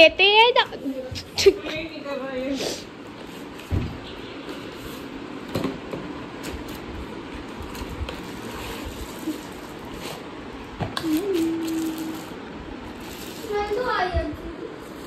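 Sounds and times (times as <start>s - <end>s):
steady hum-like tone: 0.0s - 15.0s
packaging rustling: 6.4s - 10.3s, 11.0s - 13.8s.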